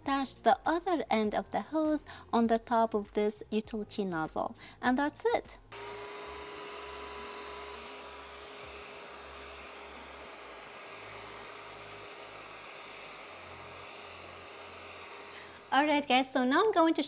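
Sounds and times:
vacuum blower rushing air: 5.7 - 16.3.

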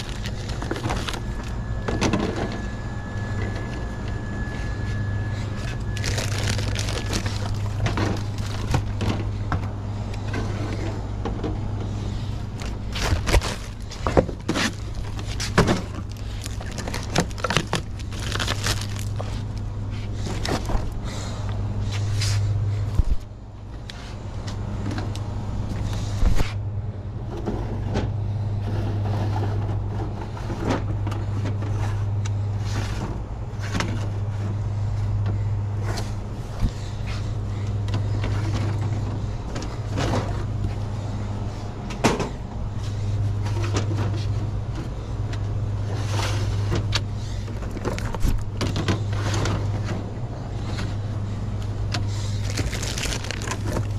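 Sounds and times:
plastic crinkling: 0.0 - 1.6, 5.6 - 9.1, 12.6 - 19.6, 52.1 - 53.9
steady low hum: 0.0 - 53.9.

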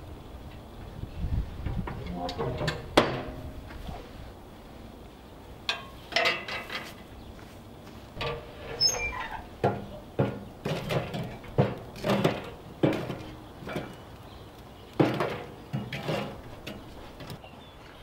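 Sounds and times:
firewood knocking against steel: 9.6 - 14.0.

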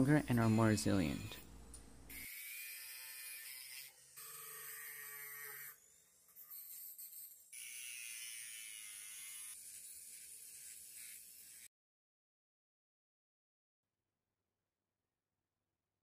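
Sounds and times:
rotary tool grinding metal: 0.0 - 1.5, 2.1 - 11.7.

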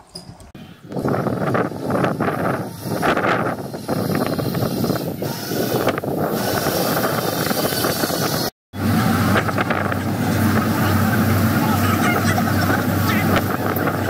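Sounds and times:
wind buffeting microphone: 0.2 - 14.0
boat engine low drone: 8.8 - 14.0.

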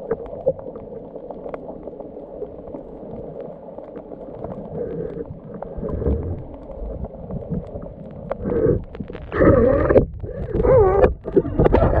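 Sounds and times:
muffled underwater rumbling: 0.0 - 12.0.

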